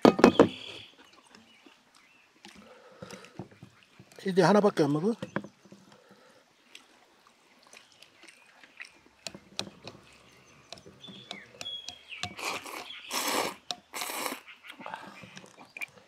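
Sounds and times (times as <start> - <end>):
bird chirping: 7.8 - 16.0
chopsticks tapping steel bowls: 10.7 - 12.9, 13.6 - 13.9
noodles being slurped: 12.4 - 16.0.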